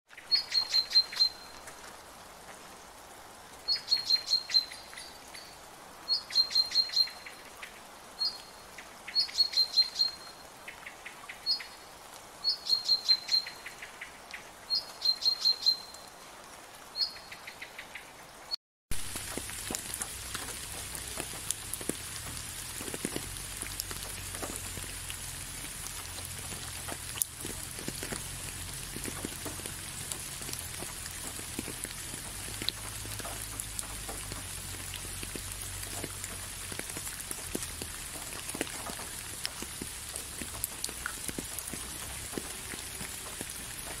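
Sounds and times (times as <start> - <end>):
raindrops ticking on hard surface: 0.1 - 17.4, 18.9 - 44.0
rain hiss: 0.1 - 44.0.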